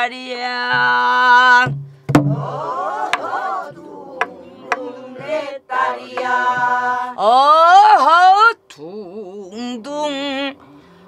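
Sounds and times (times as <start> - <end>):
group singing folk song: 0.6 - 7.8
barrel drum strokes: 1.6 - 3.5.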